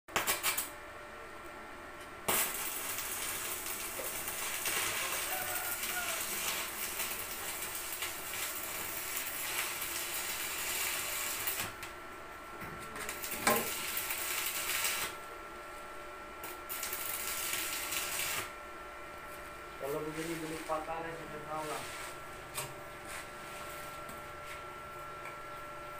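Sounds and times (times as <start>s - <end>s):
arc welding crackling hiss: 0.1s - 0.7s, 2.2s - 12.0s, 12.9s - 18.6s, 19.2s - 22.2s.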